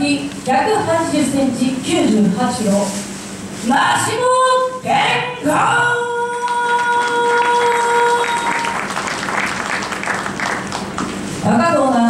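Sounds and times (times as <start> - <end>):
crowd applause: 6.7 - 11.2.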